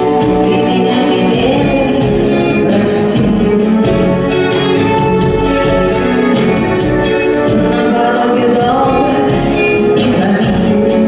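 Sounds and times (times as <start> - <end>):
woman singing: 0.0 - 4.6, 7.1 - 11.0
backing band playing pop ballad: 0.0 - 11.0.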